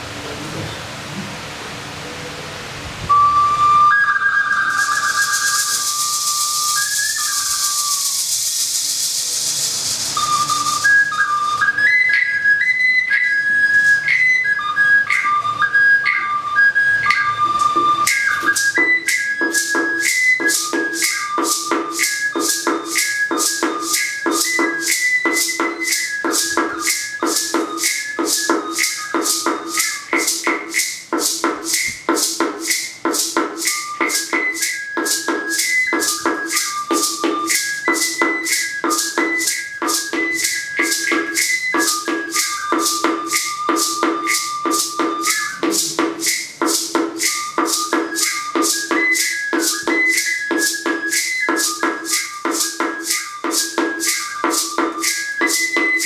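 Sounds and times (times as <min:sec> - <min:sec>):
whistle flute melody: 0:03.0 - 0:56.0
rattle and percussion beat: 0:03.1 - 0:56.0
hiss: 0:04.7 - 0:11.0.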